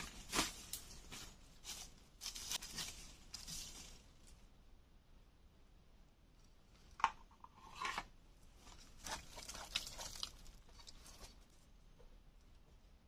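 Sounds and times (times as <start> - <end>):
dry leaves and earth scraping: 0.0 - 4.4, 8.6 - 11.6.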